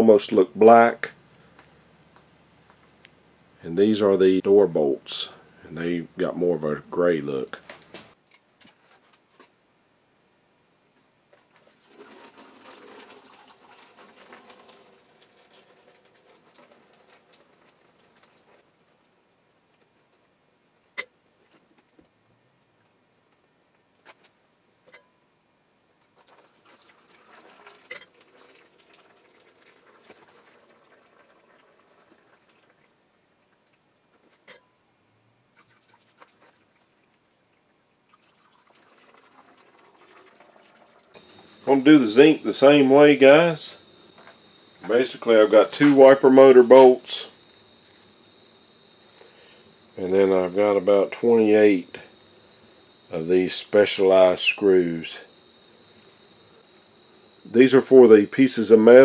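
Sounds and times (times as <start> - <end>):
liquid trickling and splashing: 11.5 - 19.0, 26.2 - 33.8, 35.5 - 41.3.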